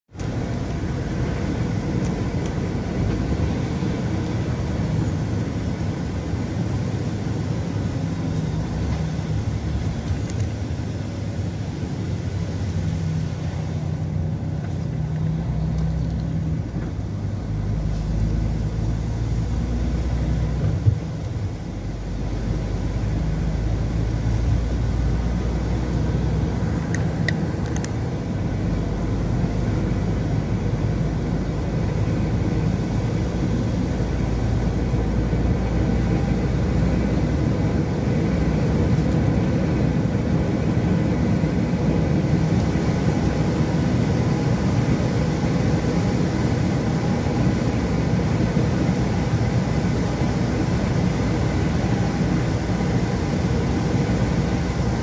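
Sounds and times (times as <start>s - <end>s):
engine and road hum: 0.0s - 55.0s.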